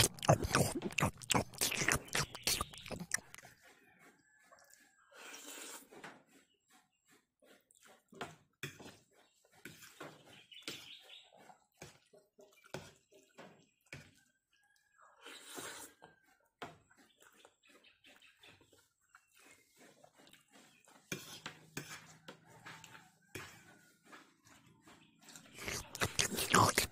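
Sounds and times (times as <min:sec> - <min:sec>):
chewing and mouth smacks: 0:00.0 - 0:03.7, 0:17.0 - 0:17.6, 0:18.7 - 0:20.5, 0:25.4 - 0:26.9.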